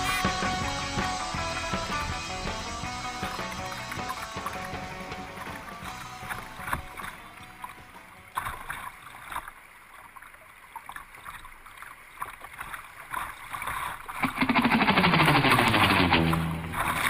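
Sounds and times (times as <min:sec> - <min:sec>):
river rapids rushing: 0:00.0 - 0:09.4
water splashing against boat: 0:00.0 - 0:17.0.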